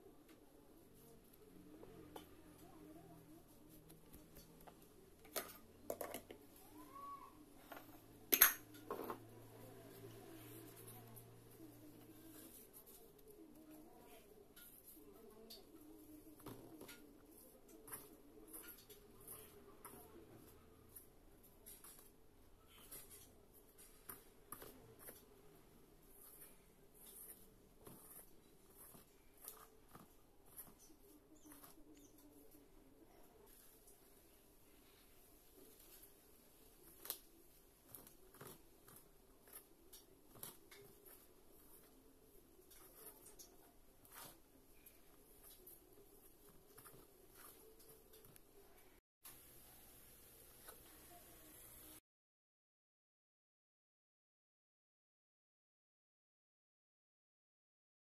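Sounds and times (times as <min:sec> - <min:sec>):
hand mixing flour in metal bowl: 0:09.2 - 0:49.4.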